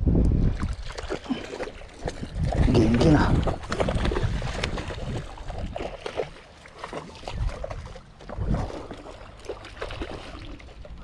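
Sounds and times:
wind rumbling on microphone: 0.0 - 6.4, 7.1 - 9.3
choppy sea water splashing: 0.0 - 11.0.

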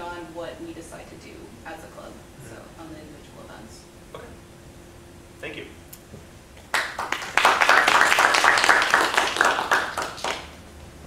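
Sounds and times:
small group applauding: 6.6 - 10.6.

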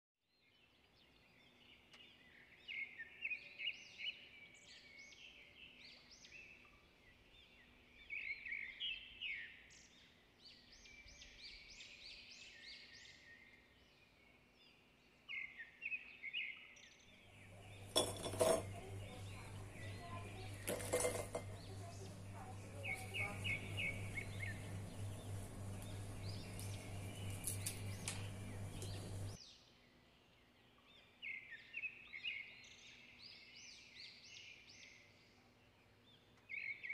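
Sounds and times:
small birds chirping: 0.3 - 36.9
steady low hum: 17.1 - 29.4
dishes clinking: 17.6 - 22.0.

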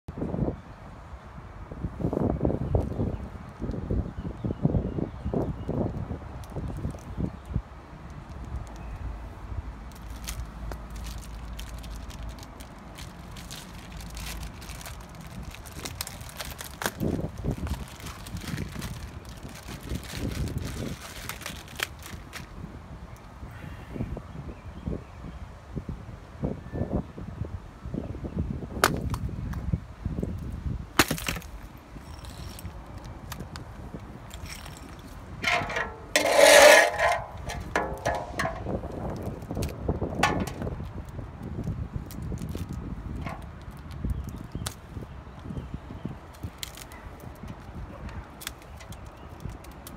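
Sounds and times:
plastic bag crinkling: 9.9 - 22.5
ice block smashing on concrete: 31.0 - 31.5
handling knocks: 34.4 - 38.8
ice pieces clinking: 34.4 - 38.8
metal pan scraping on concrete: 35.4 - 38.7.

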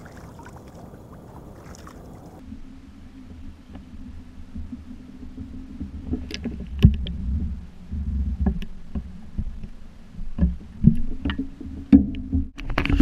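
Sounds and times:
small splashes: 0.0 - 2.4
water sloshing against housing: 0.0 - 2.4.

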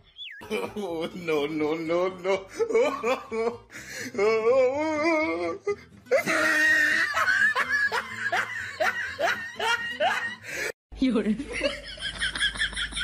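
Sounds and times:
person laughing: 0.4 - 3.6, 5.1 - 10.5.

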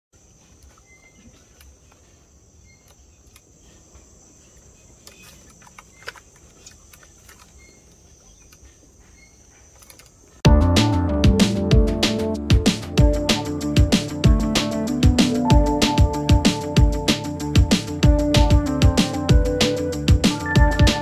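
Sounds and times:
insect chirps: 0.2 - 10.4.

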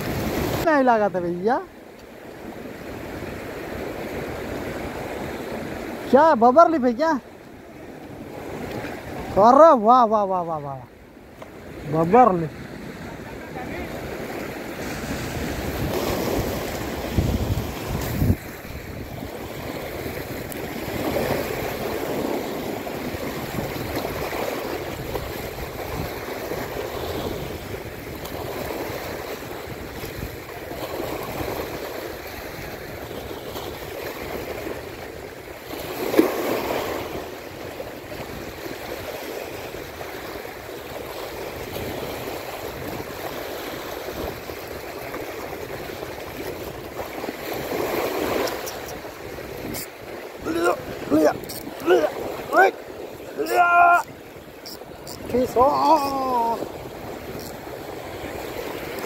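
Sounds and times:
waves washing over rocks: 0.0 - 59.0
sharp water splash: 35.6 - 37.4.

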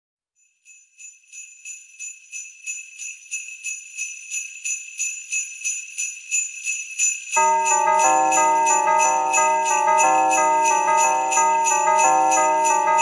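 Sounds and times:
sleigh bells shaken to a beat: 0.4 - 13.0.

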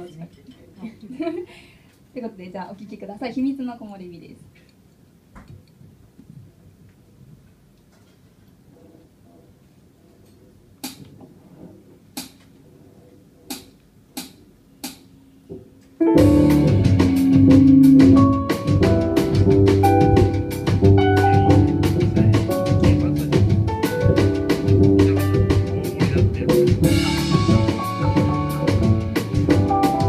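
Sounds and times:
rhythmic accompaniment with steady beat: 10.6 - 30.0.

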